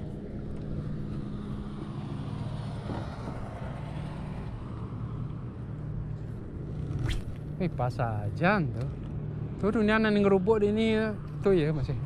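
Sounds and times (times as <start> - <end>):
boat engine humming at low revs: 0.0 - 7.7.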